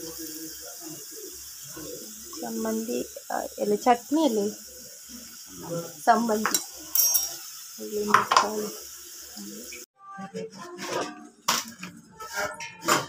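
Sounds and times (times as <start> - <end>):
gas stove hiss: 0.0 - 9.8
steel pot clinks and knocks: 6.5 - 7.5
pan handled on stove: 10.8 - 13.0.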